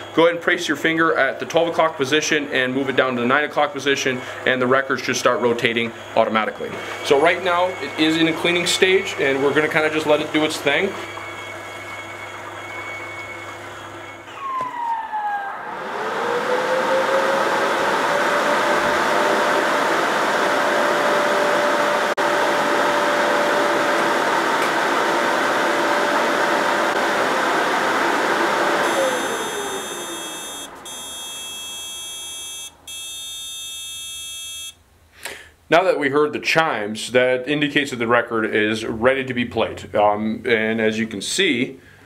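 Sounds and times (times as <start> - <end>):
long electronic chimes: 0.0 - 19.7, 22.2 - 34.8
machine hum with falling whines: 0.0 - 34.8
drying fan whine and rushing: 2.0 - 32.5.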